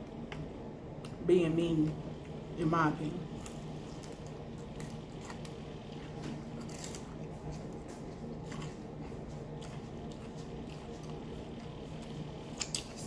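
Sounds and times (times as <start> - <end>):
steady low hum: 0.0 - 13.0
chewing crispy food: 3.3 - 13.0.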